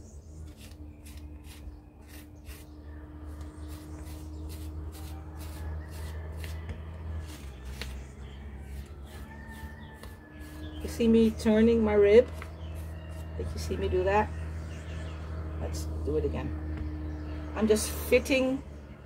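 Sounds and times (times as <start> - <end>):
rib scraping clay bowl: 0.4 - 14.0.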